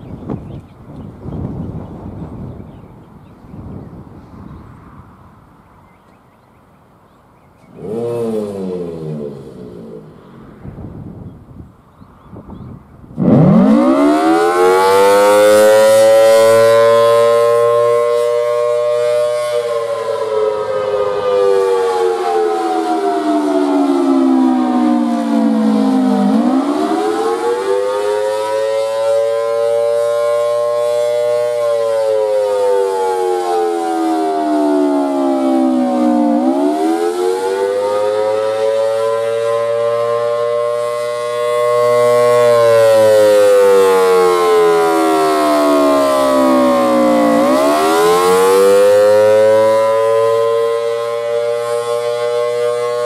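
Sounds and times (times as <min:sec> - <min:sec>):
mechanical siren wailing: 0:07.6 - 0:11.2, 0:12.3 - 0:53.0.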